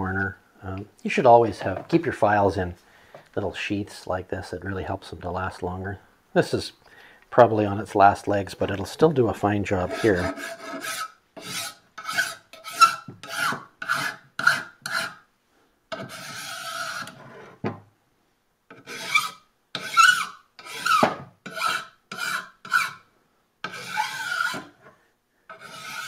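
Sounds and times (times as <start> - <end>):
file rasping on metal: 9.8 - 15.2, 15.9 - 17.6, 18.7 - 23.0, 23.6 - 24.8, 25.5 - 26.0.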